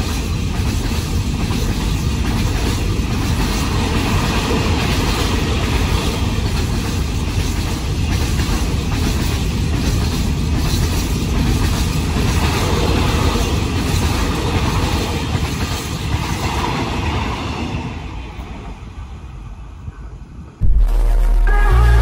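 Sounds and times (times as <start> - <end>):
wheels clicking over rails: 0.0 - 17.2
freight train rolling past: 0.0 - 20.6.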